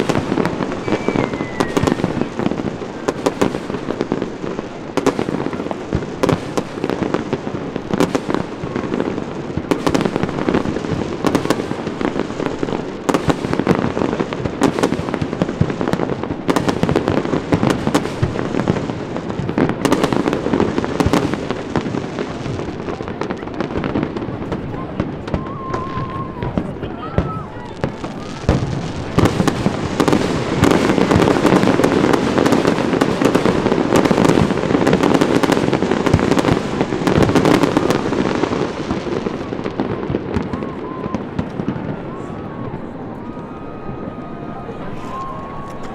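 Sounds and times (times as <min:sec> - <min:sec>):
fireworks bangs: 0:00.0 - 0:45.9
fireworks crackling and popping: 0:00.0 - 0:45.9.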